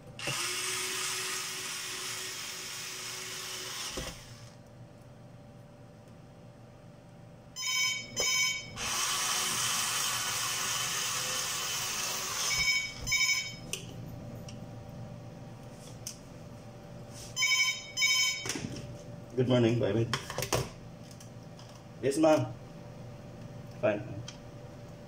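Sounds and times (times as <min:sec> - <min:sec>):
phone ringtone: 0:07.6 - 0:08.7, 0:12.5 - 0:13.6, 0:17.4 - 0:18.5.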